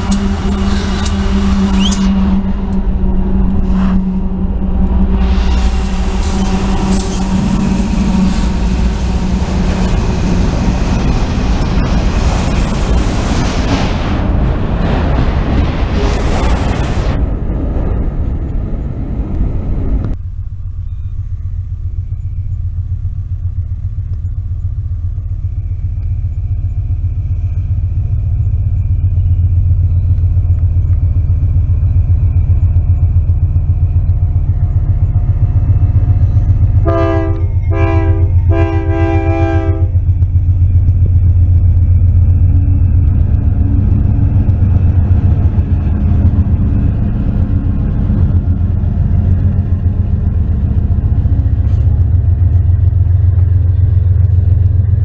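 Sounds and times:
diesel locomotives rumbling: 0:00.0 - 0:55.0
locomotive air horn blasts: 0:36.8 - 0:40.0.

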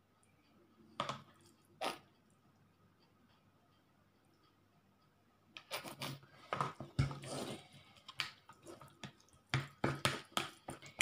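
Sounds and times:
wet squelching of stirred meat: 0:07.0 - 0:11.0
spatula knocking plastic bowl: 0:09.0 - 0:11.0.

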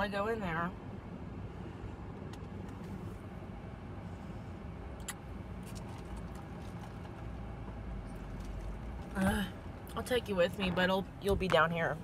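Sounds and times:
low rumble inside car: 0:00.0 - 0:12.0
clicks and taps in car cabin: 0:02.1 - 0:03.0, 0:09.8 - 0:12.0.

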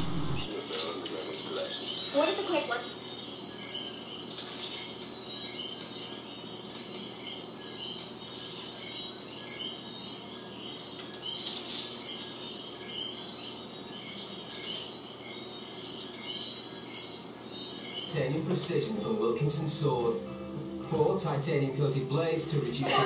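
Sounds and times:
faint high chirp: 0:01.6 - 0:19.1
dog scrabbling on tiled floor: 0:11.1 - 0:12.8.

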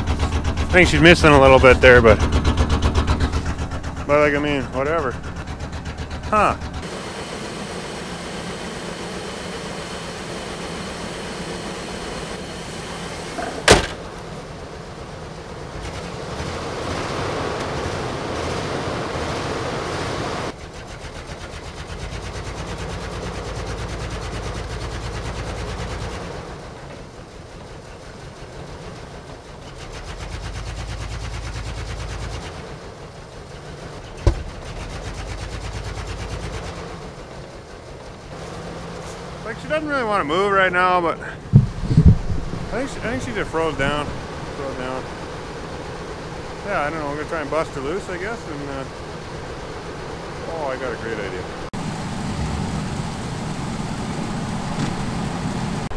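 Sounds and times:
engine running with misfire: 0:00.0 - 0:55.9
sharp engine knock: 0:34.2 - 0:34.7, 0:41.5 - 0:42.2.

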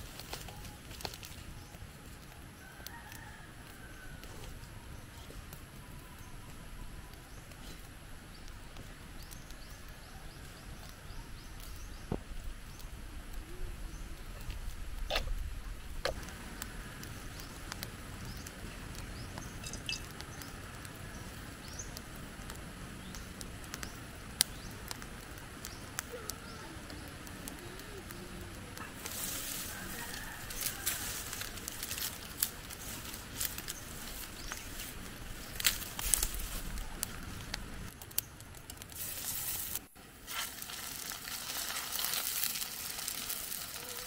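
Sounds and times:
wood fire crackling: 0:00.0 - 0:44.0
sharp pops: 0:15.0 - 0:15.4
birds chirping: 0:17.0 - 0:22.0.

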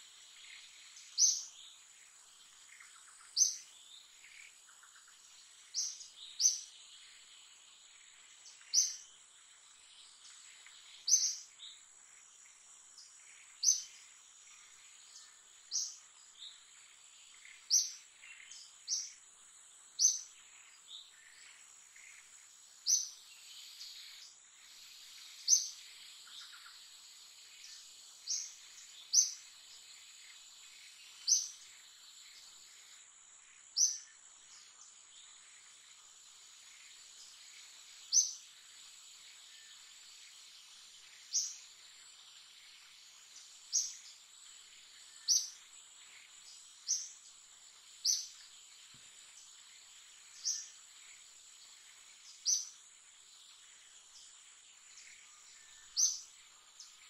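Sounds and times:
insect drone: 0:00.0 - 0:57.0.

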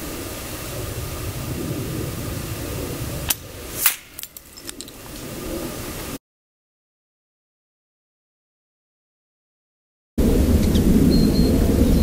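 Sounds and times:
steady rumble and hiss: 0:00.0 - 0:06.2, 0:10.2 - 0:12.0
air rifle cracks: 0:03.3 - 0:05.0.

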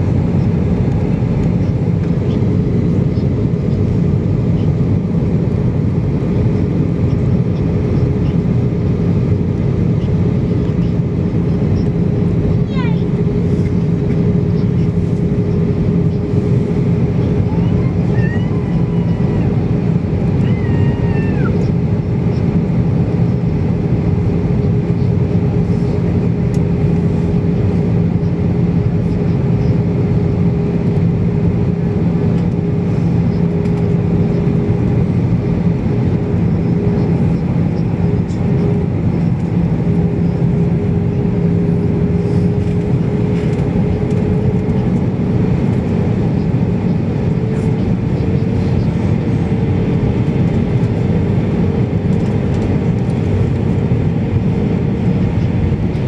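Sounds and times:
jet engine drone in cabin: 0:00.0 - 0:56.0.

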